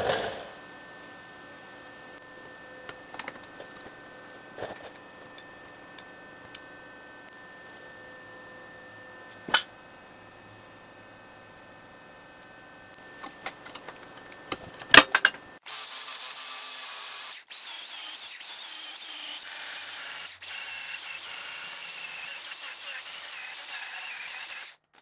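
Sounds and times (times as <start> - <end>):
angle grinder grinding steel: 15.6 - 24.8.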